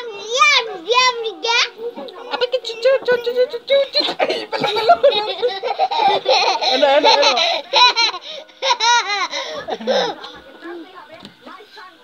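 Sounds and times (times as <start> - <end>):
children laughing: 3.6 - 10.4
toddler laughing: 3.8 - 10.3.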